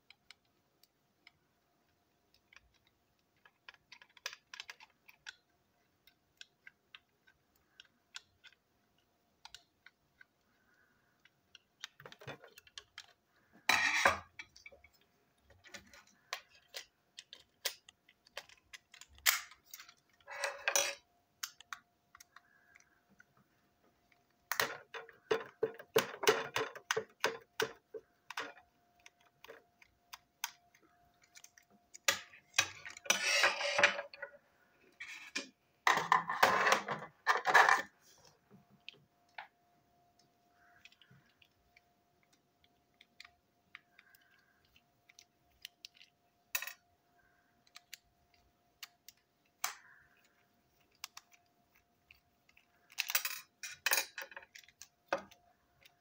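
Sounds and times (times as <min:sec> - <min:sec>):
plastic toy clicks and rattles: 0:02.4 - 0:05.5, 0:13.8 - 0:22.9, 0:24.5 - 0:34.3, 0:47.6 - 0:56.0
plastic parts clattering: 0:10.6 - 0:22.8, 0:24.2 - 0:38.0, 0:40.6 - 0:56.0.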